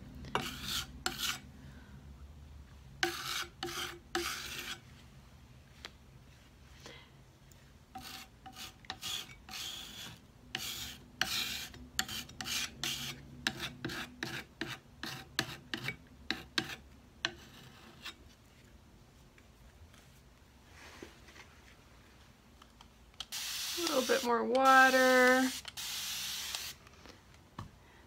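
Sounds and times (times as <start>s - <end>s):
putty knife scraping wet paint: 0.4s - 1.4s, 3.0s - 4.8s, 8.0s - 18.2s.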